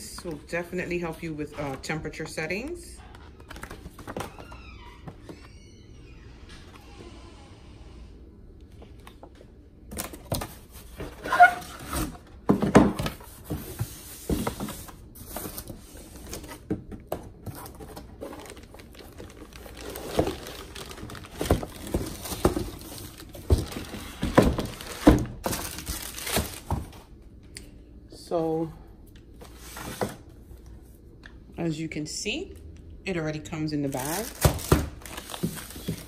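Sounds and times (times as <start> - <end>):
plastic wrap and cardboard rustling: 17.3 - 27.1, 33.9 - 36.0.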